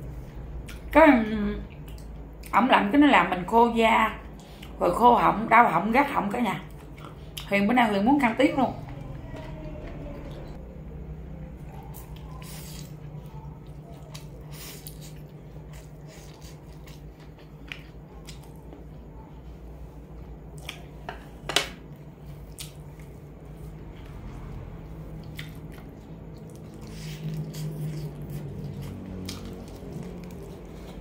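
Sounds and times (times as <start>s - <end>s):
steady low hum: 0.0s - 31.0s
wet chewing and slurping: 11.6s - 18.8s, 22.3s - 31.0s.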